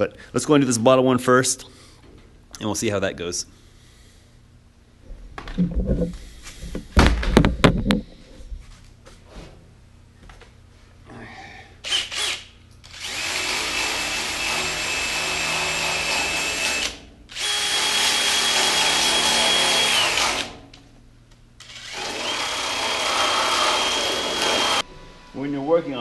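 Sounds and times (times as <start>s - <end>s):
drill sanding metal: 11.9s - 20.4s, 21.7s - 24.8s.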